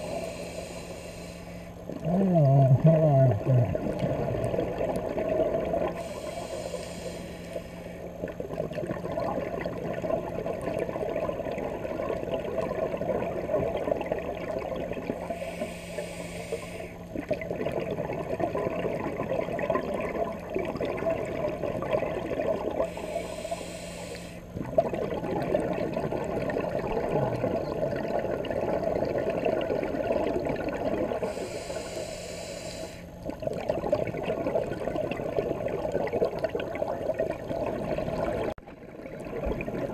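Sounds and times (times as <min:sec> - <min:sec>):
diver inhaling through regulator: 0:00.0 - 0:01.9, 0:06.0 - 0:08.1, 0:15.2 - 0:17.1, 0:22.8 - 0:24.6, 0:31.2 - 0:33.2
exhaled bubbles rushing: 0:01.9 - 0:06.1, 0:08.2 - 0:15.5, 0:17.1 - 0:22.9, 0:24.5 - 0:31.3, 0:33.1 - 0:39.9.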